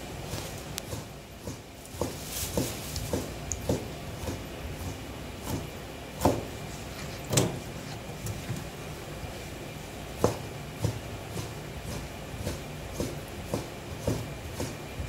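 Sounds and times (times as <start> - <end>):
knife chopping on plastic board: 0.9 - 6.5, 10.2 - 14.8.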